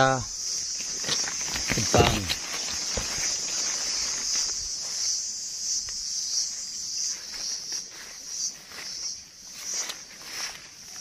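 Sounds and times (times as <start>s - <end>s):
insects trilling: 0.0s - 11.0s
faint rustles: 0.6s - 5.2s.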